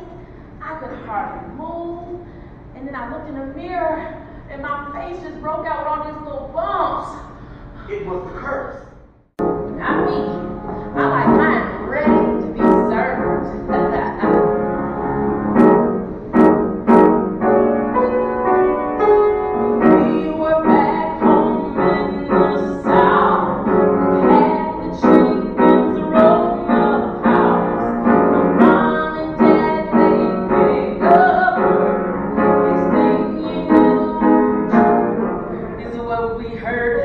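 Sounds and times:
piano accompaniment: 9.2 - 37.0
woman singing: 9.8 - 14.5, 19.8 - 34.8, 35.8 - 37.0.

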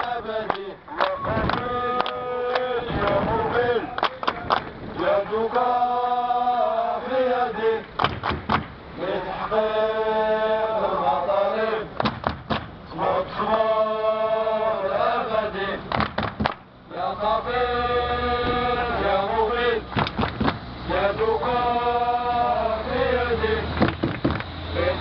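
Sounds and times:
crowd chanting: 0.0 - 4.3, 5.0 - 8.1, 8.9 - 12.1, 12.9 - 16.0, 16.9 - 20.2, 20.8 - 24.0, 24.6 - 25.0
short sharp knocks: 20.0 - 20.6.

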